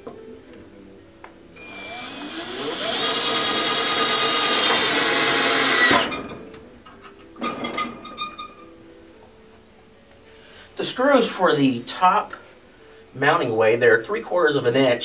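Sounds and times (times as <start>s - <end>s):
cordless drill motor whine: 1.6s - 6.0s.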